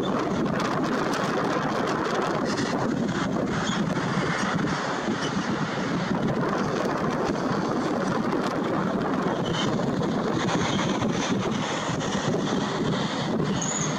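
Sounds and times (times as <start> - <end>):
jet engines at takeoff: 0.0 - 13.9.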